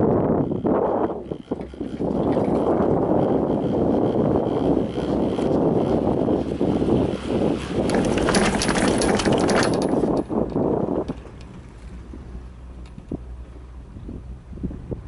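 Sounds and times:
chairlift rumble: 0:00.0 - 0:15.0.

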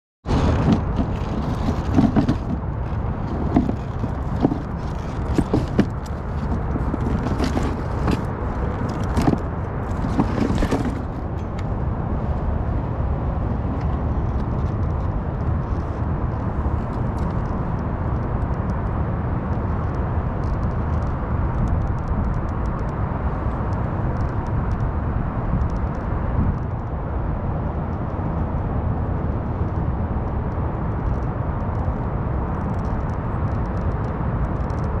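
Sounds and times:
wind buffeting microphone: 0:00.2 - 0:35.0
handling knocks and clicks: 0:00.3 - 0:11.7
cable and gear rustling: 0:00.3 - 0:11.8.

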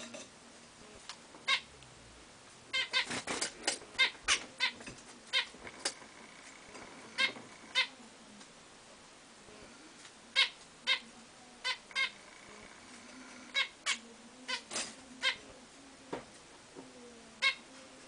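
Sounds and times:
finches calling: 0:03.9 - 0:08.0, 0:10.3 - 0:15.5.

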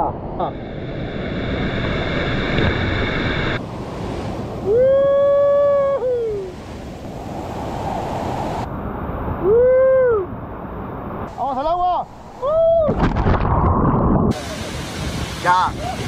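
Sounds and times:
waterfall and river rushing: 0:00.6 - 0:05.2, 0:14.3 - 0:16.0
person whooping yells: 0:04.7 - 0:06.5, 0:09.4 - 0:10.3, 0:12.4 - 0:13.0.

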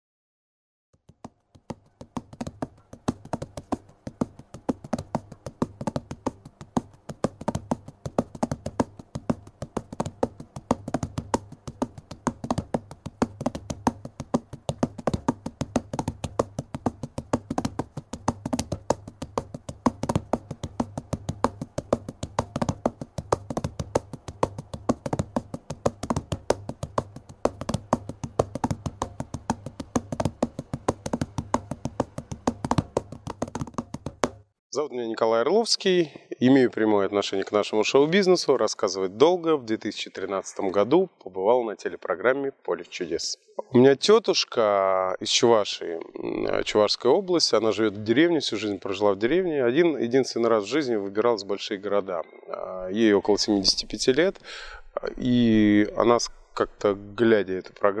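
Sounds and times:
rapid sharp clicks and taps: 0:01.0 - 0:34.5.

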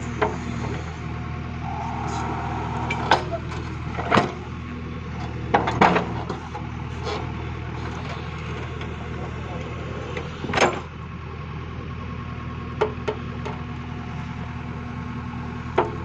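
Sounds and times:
digger diesel engine running: 0:00.0 - 0:16.0.

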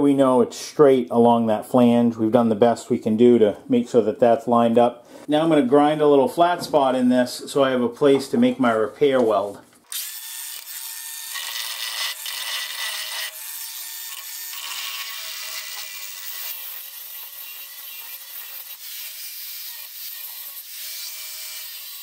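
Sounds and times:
angle grinder grinding metal: 0:09.9 - 0:22.0.

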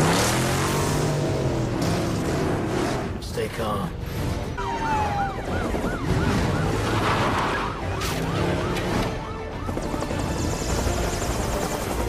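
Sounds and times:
police sirens yelping: 0:04.6 - 0:10.4.

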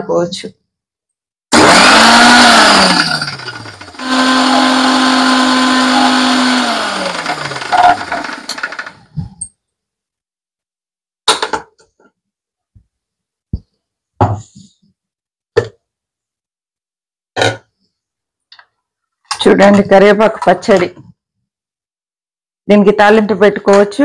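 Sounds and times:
mixer grinder motor: 0:01.5 - 0:09.2.

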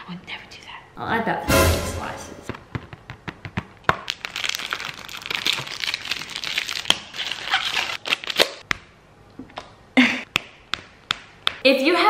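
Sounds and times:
plastic packaging crinkling: 0:03.9 - 0:08.6.

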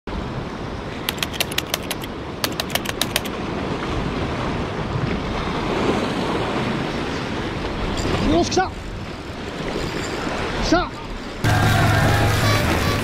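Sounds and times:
sea: 0:00.1 - 0:13.0
wind: 0:00.1 - 0:13.0
sharp clicks: 0:01.1 - 0:03.4.

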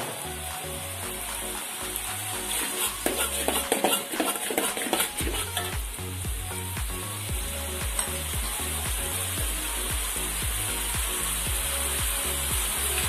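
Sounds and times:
steady sizzle: 0:00.0 - 0:13.0
metal spatula scraping a wok: 0:02.5 - 0:05.7.

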